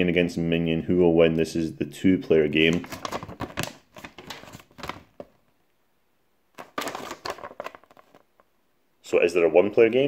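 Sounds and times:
paper leaflet rustling: 2.6s - 5.4s, 6.6s - 8.5s.

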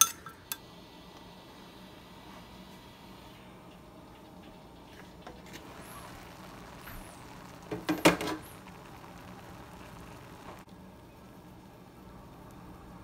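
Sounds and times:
metal cookware clattering: 0.0s - 0.6s
steaming pot hissing: 0.5s - 10.7s.

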